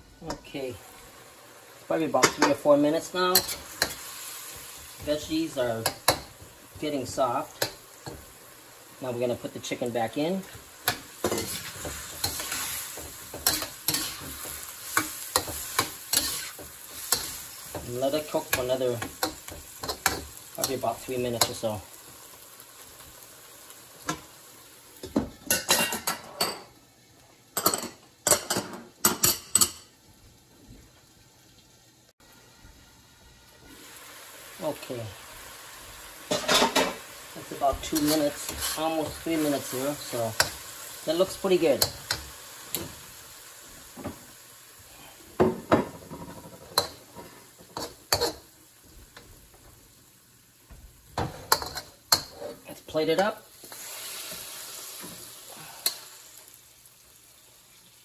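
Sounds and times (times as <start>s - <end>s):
faint food sizzling: 0.0s - 58.0s
spatula scraping metal wok: 10.9s - 20.8s, 37.7s - 40.6s.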